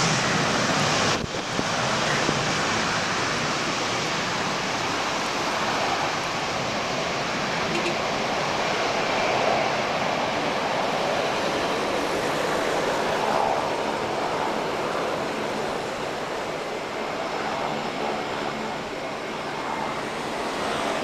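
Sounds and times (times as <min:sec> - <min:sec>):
jet engines roaring at takeoff: 0:00.0 - 0:21.0.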